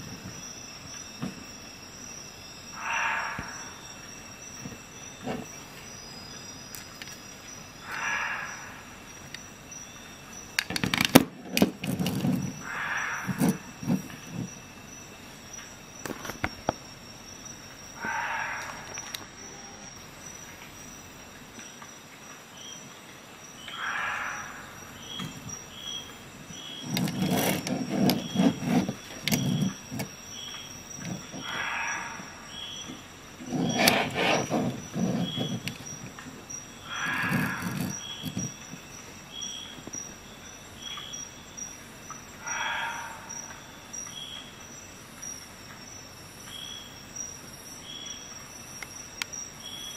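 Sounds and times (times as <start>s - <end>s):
soft rustle: 32.9s - 36.4s.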